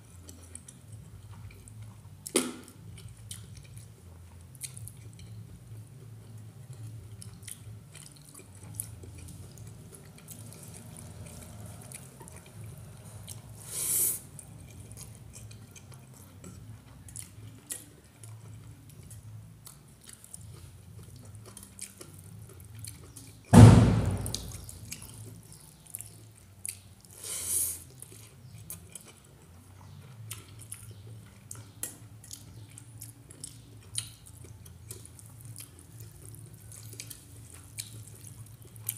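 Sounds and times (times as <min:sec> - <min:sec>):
wet chewing: 0:00.1 - 0:23.5, 0:24.2 - 0:38.9
loud thump: 0:23.6 - 0:24.6.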